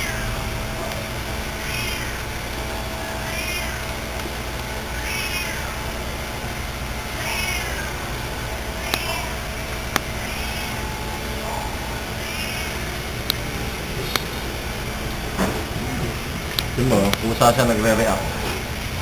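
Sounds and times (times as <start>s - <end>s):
cat meowing: 0.0s - 6.0s, 7.1s - 14.3s
steady hum: 0.0s - 19.0s.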